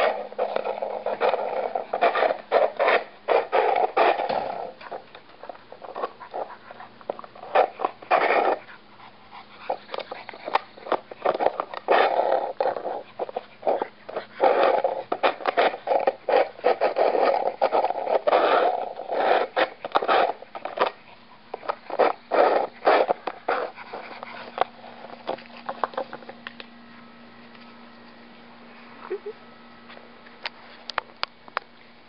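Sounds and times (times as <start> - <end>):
plastic frisbee scraping on asphalt: 0.0 - 8.7, 9.6 - 26.4.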